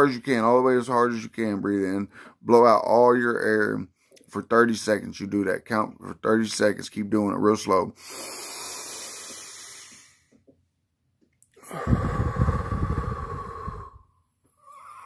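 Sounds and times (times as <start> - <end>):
breath blown out through mouth: 8.0 - 10.2, 11.6 - 15.0
man breathing in through nose: 8.0 - 10.3, 11.6 - 15.0
wind rumble on microphone: 11.8 - 14.0.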